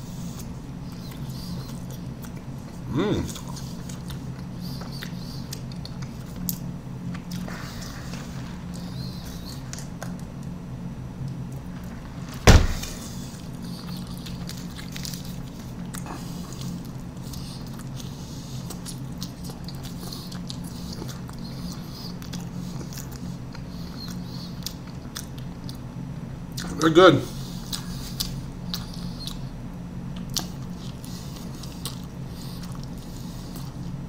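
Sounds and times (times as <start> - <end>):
steady low hum: 0.0 - 34.0
chewing clicks: 13.8 - 25.8, 27.6 - 29.5, 30.2 - 34.0.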